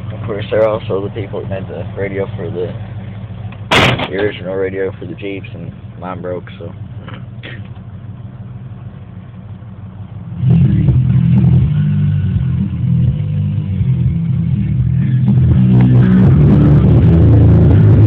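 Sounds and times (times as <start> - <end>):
truck engine idling: 0.0 - 18.0
loud bass-heavy music: 10.4 - 18.0.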